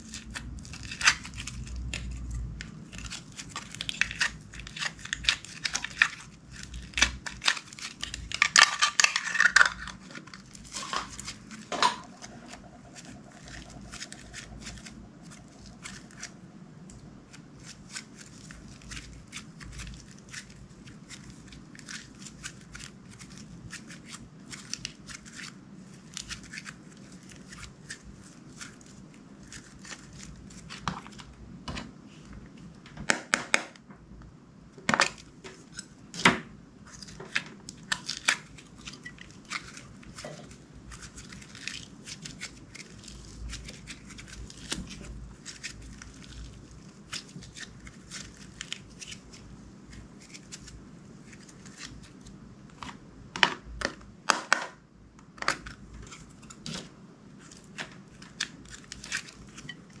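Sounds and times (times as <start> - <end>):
slime crackling and popping: 0.1 - 26.8.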